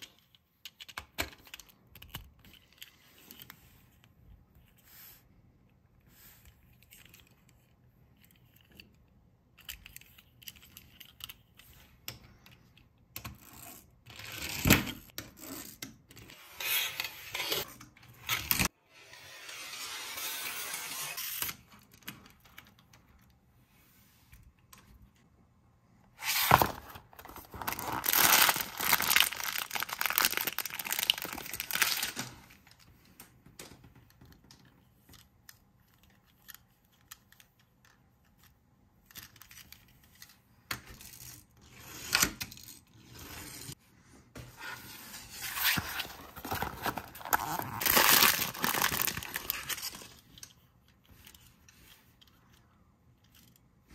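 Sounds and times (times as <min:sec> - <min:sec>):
packaging tearing and crinkling: 0:26.2 - 0:32.4, 0:45.6 - 0:50.2
packaging clicks and rustles: 0:26.4 - 0:32.8, 0:45.6 - 0:50.5.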